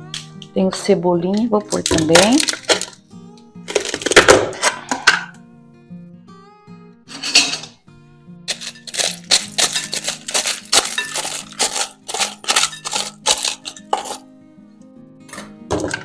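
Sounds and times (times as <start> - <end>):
background music: 0.0 - 16.0
knife scraping and tapping tub: 8.5 - 14.2.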